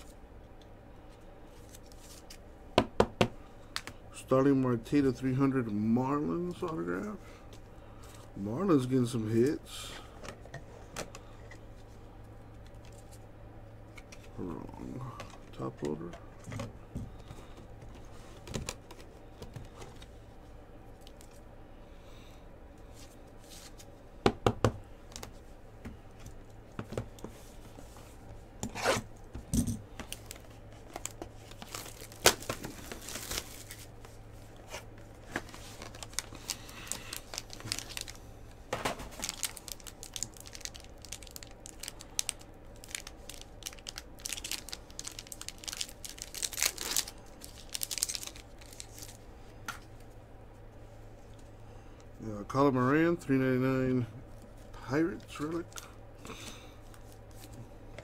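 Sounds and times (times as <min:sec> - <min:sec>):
foil wrapper tearing and crinkling: 0:30.0 - 0:33.9, 0:35.3 - 0:38.2, 0:39.0 - 0:49.2.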